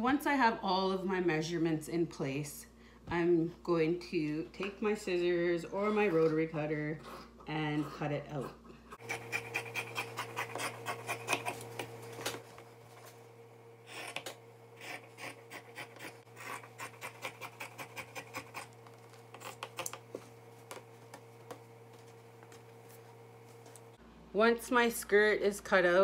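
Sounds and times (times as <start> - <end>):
scissors snipping fabric: 14.0 - 18.7.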